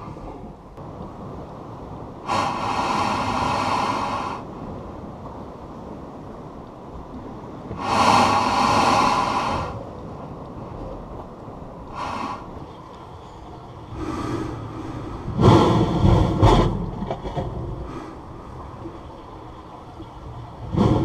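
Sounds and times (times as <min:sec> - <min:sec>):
air and spray gusting out: 0:02.3 - 0:04.4, 0:07.8 - 0:09.8
low rumble: 0:07.8 - 0:21.0.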